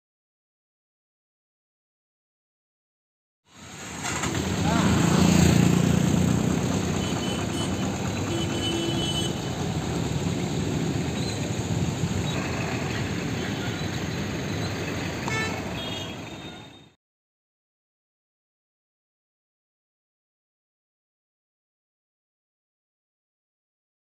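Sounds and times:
motorcycle and car engines passing: 3.5 - 16.9
car horn toots: 6.9 - 9.6, 15.2 - 16.9.

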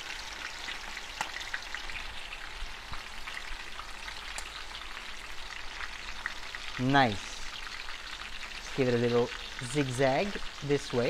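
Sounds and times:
batter sizzling in hot oil: 0.0 - 11.0
crackling pops: 1.1 - 1.5.

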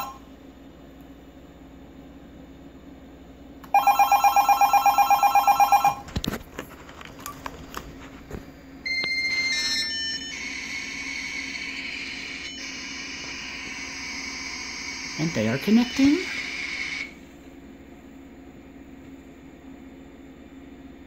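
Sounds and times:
telephone ringing: 0.0 - 0.2, 3.7 - 6.1, 8.8 - 17.2
dial-up modem handshake: 3.7 - 6.2.

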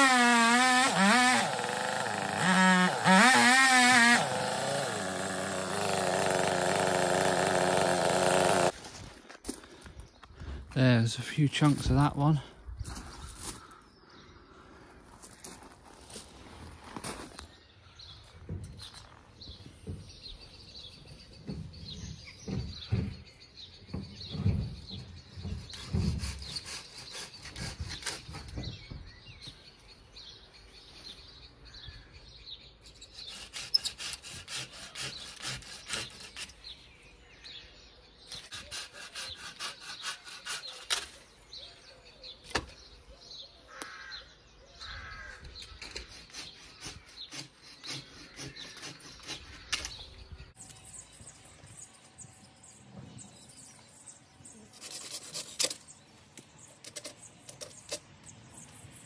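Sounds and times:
hand saw cutting wood: 0.0 - 8.8, 25.4 - 28.6, 32.9 - 36.8, 38.3 - 41.4, 45.8 - 50.0, 54.7 - 56.0.

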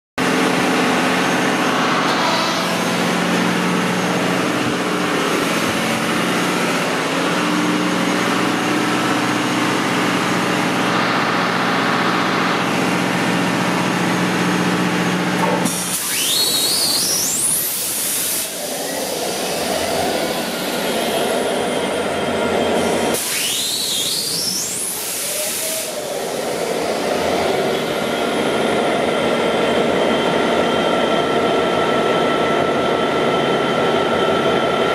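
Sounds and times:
engine-room machinery droning: 0.2 - 34.9
diesel engine starting with hiss: 14.8 - 21.7, 22.8 - 28.5.

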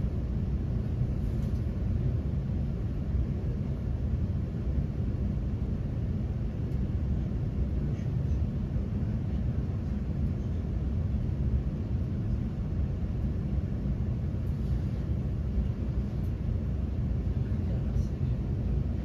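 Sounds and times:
train interior rumble: 0.0 - 19.0.

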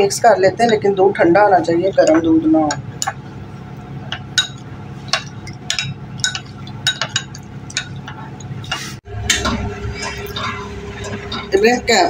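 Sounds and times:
steady hum: 0.0 - 12.0
spoon clinking in ceramic bowl: 5.2 - 8.2.

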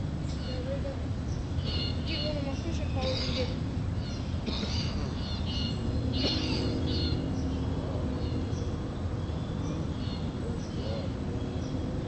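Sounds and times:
steady low background noise: 0.0 - 12.0
geese calling: 1.6 - 7.3.

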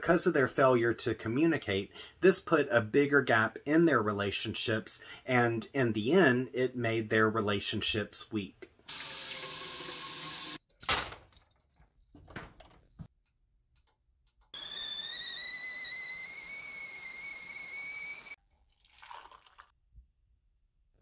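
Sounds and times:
kettle whistling: 14.6 - 18.4.

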